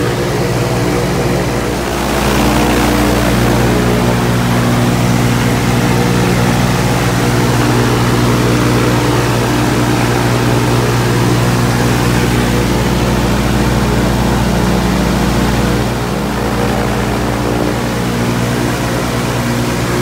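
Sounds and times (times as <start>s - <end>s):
aircraft engine and propeller running: 0.0s - 20.0s.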